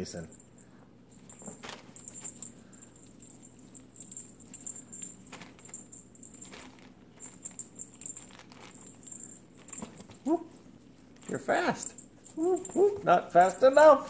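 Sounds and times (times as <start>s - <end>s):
faint rustling: 0.4s - 14.0s
cats pawing at toy: 1.1s - 13.6s
crinkly plastic bag: 5.3s - 9.0s.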